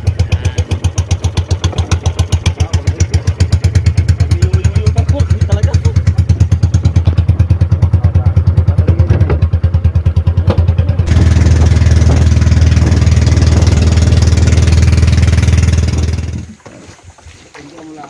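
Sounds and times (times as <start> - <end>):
boat engine thudding: 0.0 - 18.0.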